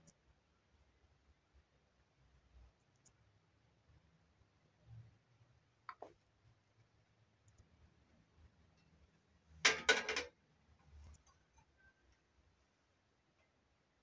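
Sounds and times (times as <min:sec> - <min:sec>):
metal pan clattering: 0:09.7 - 0:10.3.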